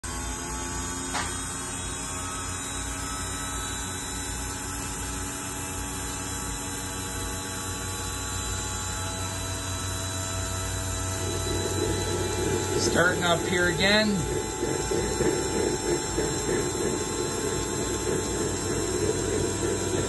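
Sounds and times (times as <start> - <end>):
jet turbine starter whirring: 1.0 - 1.9, 9.8 - 20.0.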